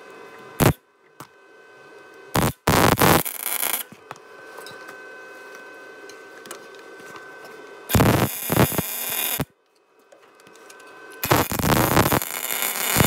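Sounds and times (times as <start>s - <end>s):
welder arc crackling: 2.4s - 3.9s, 7.9s - 9.5s, 11.2s - 13.0s.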